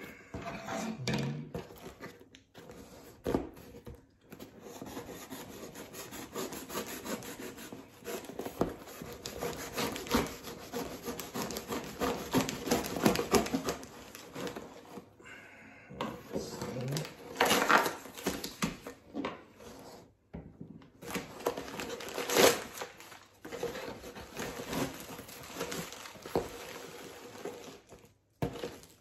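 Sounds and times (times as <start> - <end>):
knife sawing through cardboard: 4.4 - 15.1, 23.5 - 27.7.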